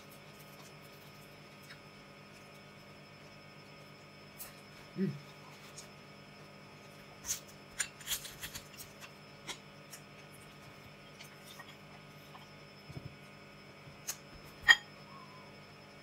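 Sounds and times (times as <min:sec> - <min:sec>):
person humming: 0:04.9 - 0:05.3.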